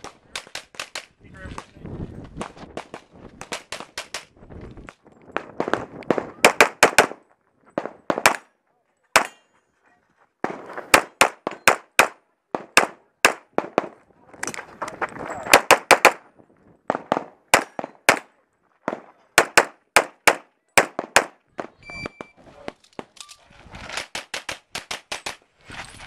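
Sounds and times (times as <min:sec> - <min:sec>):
pistol shots: 0:05.5 - 0:07.2, 0:07.8 - 0:08.5, 0:09.2 - 0:09.4, 0:10.4 - 0:14.0, 0:15.5 - 0:16.2, 0:16.9 - 0:22.3.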